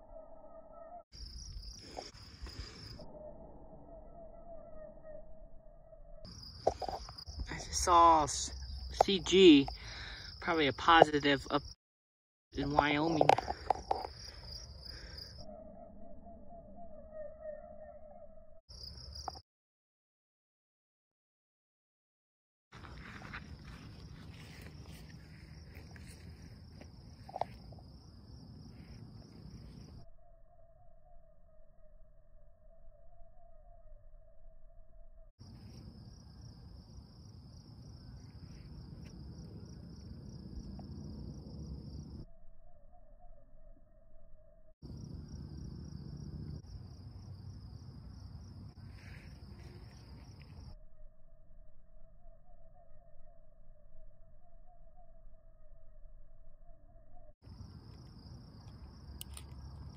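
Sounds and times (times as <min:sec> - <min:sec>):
faint wavering tone: 0:00.0 - 0:01.0, 0:01.9 - 0:07.4, 0:12.6 - 0:18.6
crickets chirring: 0:00.0 - 0:05.3, 0:06.2 - 0:11.8, 0:12.6 - 0:19.4, 0:22.8 - 0:59.9
sharp insect call: 0:00.0 - 0:05.4, 0:06.2 - 0:11.8, 0:12.6 - 0:19.4, 0:22.8 - 0:34.6, 0:35.4 - 0:59.9.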